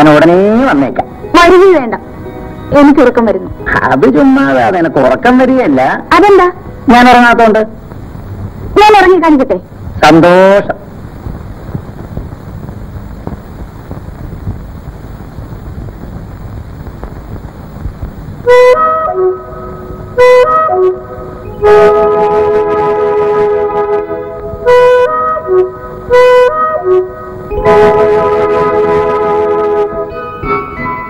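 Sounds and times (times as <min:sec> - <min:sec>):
steady hiss: 0:00.0 - 0:31.0
wind instrument melody with chords: 0:00.4 - 0:04.7, 0:18.5 - 0:31.0.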